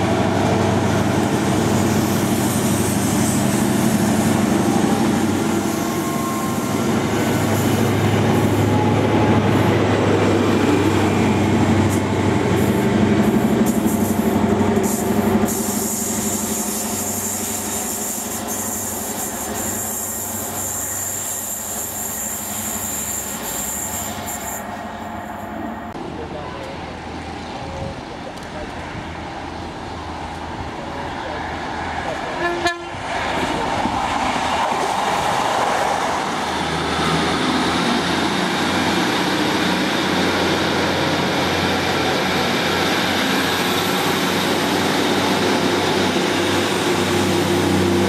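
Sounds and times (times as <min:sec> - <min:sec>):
diesel train engine running: 0:00.0 - 0:48.0
train wheels rumbling on rails: 0:00.0 - 0:48.0.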